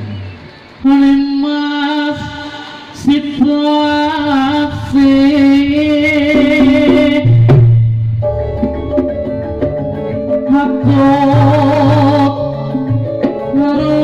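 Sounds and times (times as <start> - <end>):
amplified band music: 3.5 - 14.0.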